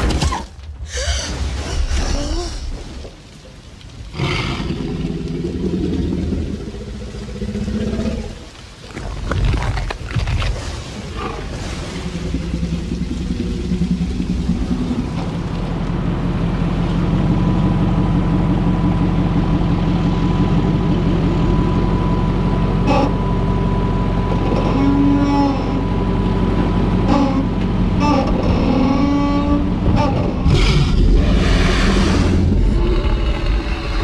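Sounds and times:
heavy thuds and rumbling: 26.4s - 34.0s.

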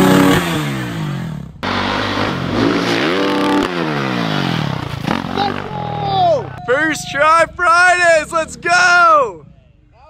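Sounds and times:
dirt bike engine revving: 0.0s - 6.6s.

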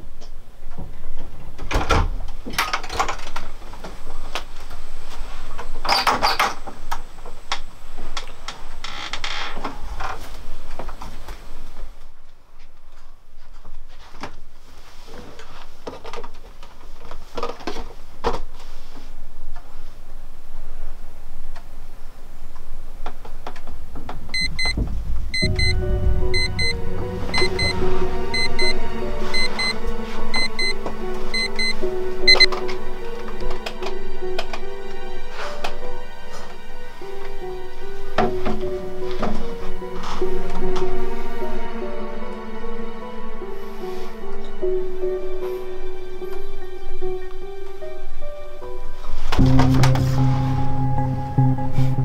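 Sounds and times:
film score with deep rumble: 24.0s - 35.1s, 49.4s - 52.0s
electronic alarm beeping: 24.4s - 24.8s, 25.4s - 28.8s, 29.4s - 30.8s, 31.4s - 32.5s.

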